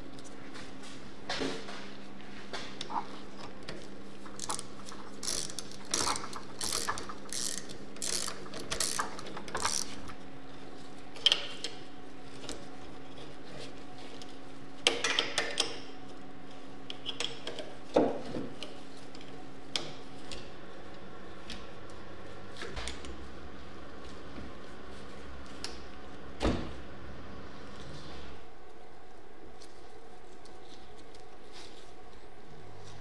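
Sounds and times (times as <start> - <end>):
socket ratchet clicking: 4.4 - 9.9.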